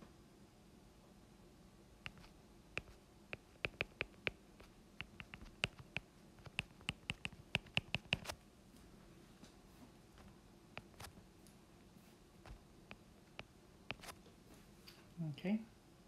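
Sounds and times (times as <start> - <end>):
stylus tapping on glass screen: 2.1 - 4.4, 5.0 - 8.3, 13.4 - 14.2.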